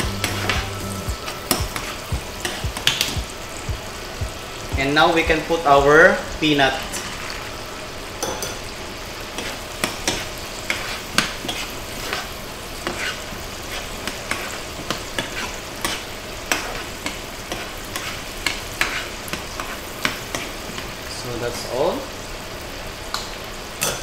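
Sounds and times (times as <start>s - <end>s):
sauce sizzling in a pan: 0.0s - 24.0s
metal spoon scraping a pan: 9.4s - 19.4s.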